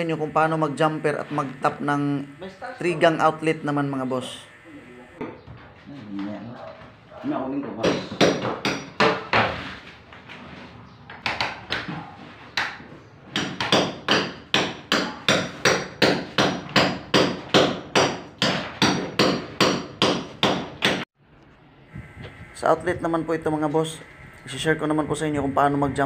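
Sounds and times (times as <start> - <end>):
hammer knocks on wood: 7.6 - 9.6, 13.3 - 21.0.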